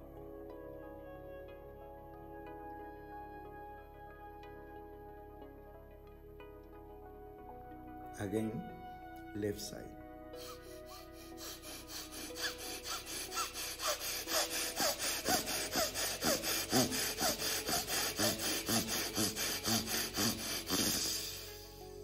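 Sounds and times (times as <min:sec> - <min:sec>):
man breathing sharply through nose: 0:10.3 - 0:21.9.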